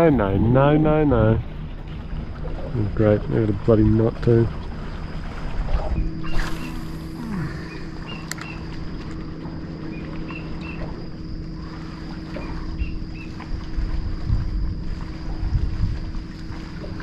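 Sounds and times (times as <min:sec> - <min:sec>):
steady low hum: 0:00.0 - 0:17.0
wind and water noise: 0:00.0 - 0:17.0
high bird chirps: 0:07.7 - 0:08.7
click: 0:08.2 - 0:08.6.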